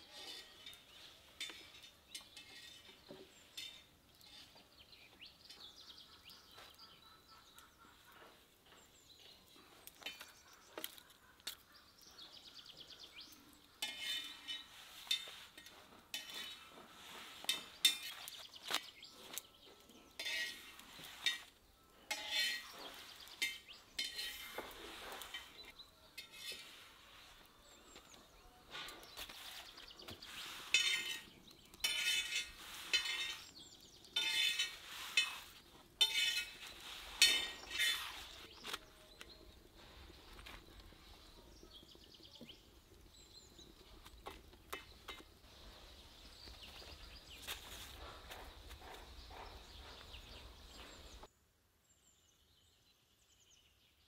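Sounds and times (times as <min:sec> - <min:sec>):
metal skewer clinking on iron griddle: 0:00.1 - 0:04.6, 0:13.8 - 0:16.6, 0:17.4 - 0:18.4, 0:20.2 - 0:21.5, 0:22.1 - 0:26.7, 0:30.7 - 0:38.1.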